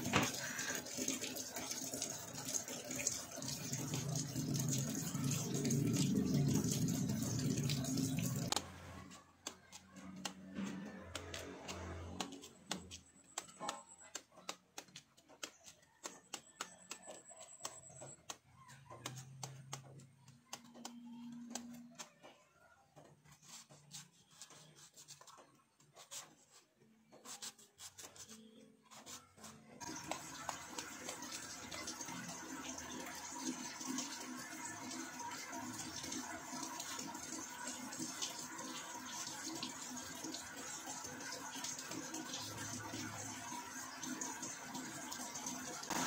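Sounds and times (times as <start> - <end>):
knife scraping fruit skin: 27.2 - 32.4.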